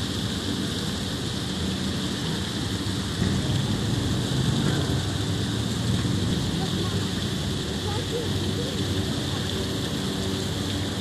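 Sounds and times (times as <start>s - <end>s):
low hum: 0.0s - 7.8s
water churning in a lock: 0.0s - 11.0s.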